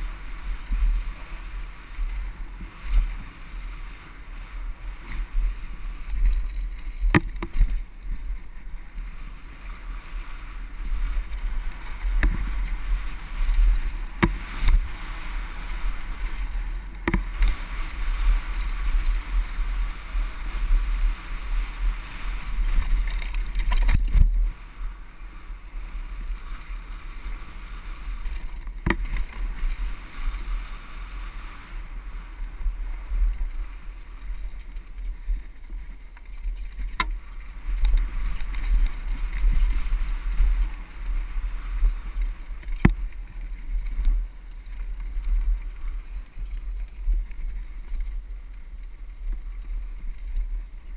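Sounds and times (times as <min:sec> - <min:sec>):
bike tyre and drivetrain noise: 0:00.0 - 0:50.9
wind buffeting microphone: 0:00.0 - 0:50.9
bike clacking over bumps: 0:04.8 - 0:08.6, 0:10.6 - 0:19.3.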